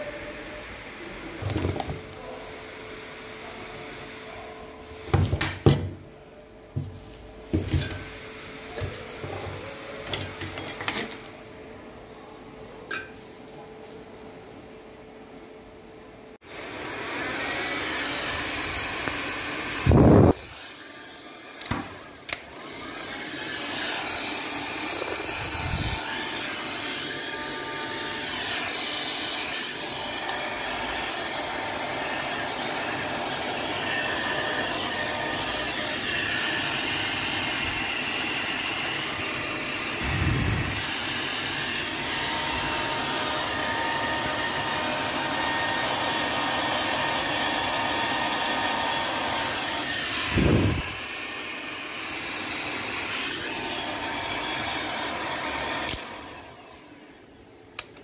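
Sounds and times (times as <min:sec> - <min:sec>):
heat gun fan blowing: 0:16.4 - 0:58.0
clicks: 0:57.8 - 0:58.0.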